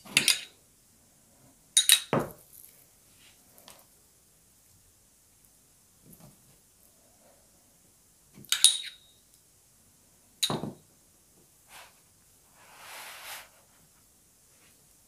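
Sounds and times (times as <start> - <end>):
bun sliding across wooden board: 12.6 - 13.7.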